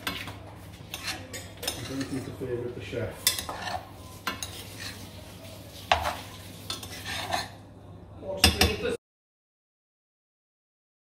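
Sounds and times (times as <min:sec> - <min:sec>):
utensils clinking against dishes: 0:00.0 - 0:02.5, 0:03.1 - 0:05.2, 0:05.8 - 0:07.6.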